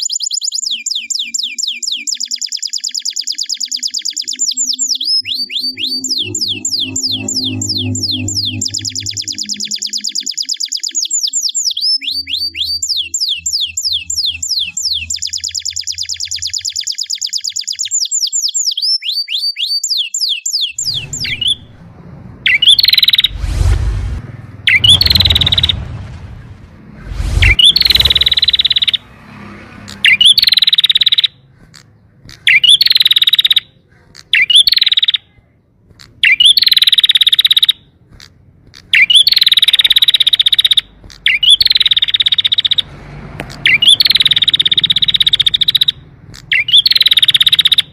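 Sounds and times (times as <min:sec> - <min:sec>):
buzzy bird calls: 0:00.0 - 0:21.8, 0:22.4 - 0:23.8, 0:24.6 - 0:29.1, 0:29.8 - 0:35.4, 0:36.0 - 0:42.9, 0:43.5 - 0:47.9
canary chirping and trilling: 0:00.0 - 0:23.7, 0:24.6 - 0:47.9
low thumps: 0:20.8 - 0:29.1.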